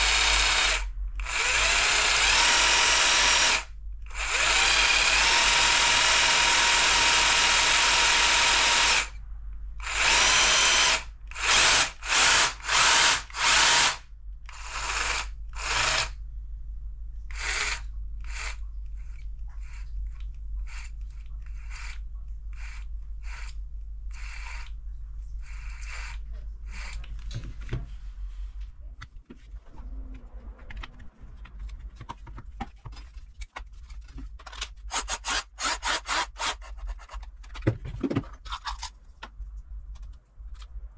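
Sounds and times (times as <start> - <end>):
jigsaw motor running: 0.0 - 9.1, 9.8 - 16.1, 17.4 - 18.6, 34.9 - 36.6
plastic housing clicking and rubbing: 29.0 - 35.0, 36.6 - 40.8.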